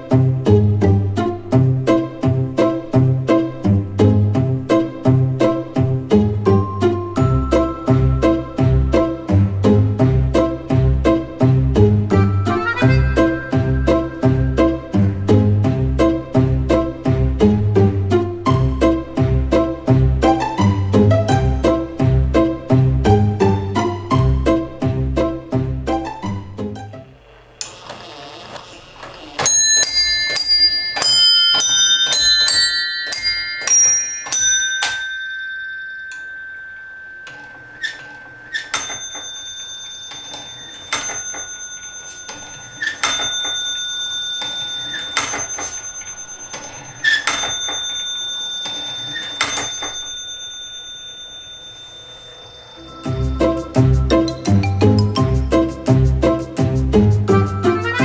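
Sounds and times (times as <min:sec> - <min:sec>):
clock bells chime tune: 0:05.9 - 0:17.0, 0:29.4 - 0:55.6
single bell strokes: 0:29.5 - 0:54.4.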